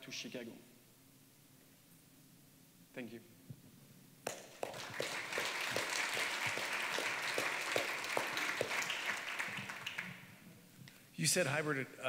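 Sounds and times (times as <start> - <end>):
audience applauding: 4.3 - 10.4.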